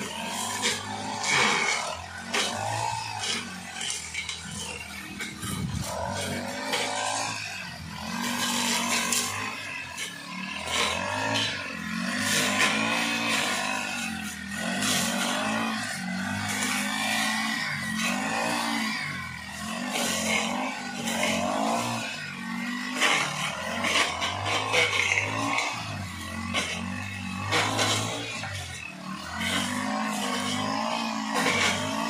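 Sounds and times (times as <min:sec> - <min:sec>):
brush cutter engine revving: 0:00.0 - 0:32.0.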